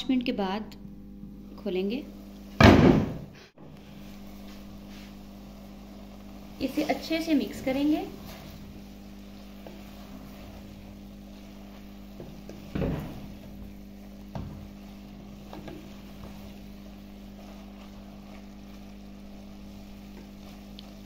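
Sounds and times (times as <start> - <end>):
wooden spatula stirring greens: 3.8 - 21.0
spatula scraping earthenware pot: 5.0 - 21.0.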